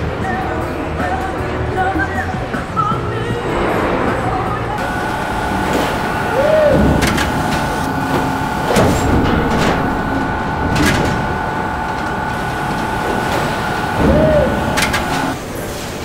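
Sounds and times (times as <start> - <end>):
two-tone machine whine: 4.8 - 15.5.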